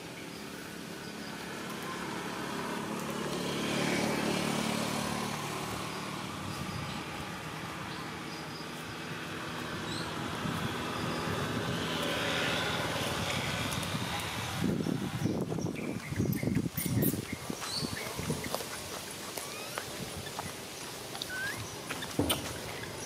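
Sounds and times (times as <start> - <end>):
outdoor background hiss: 0.0 - 23.0
vehicle engine passing: 0.4 - 15.8.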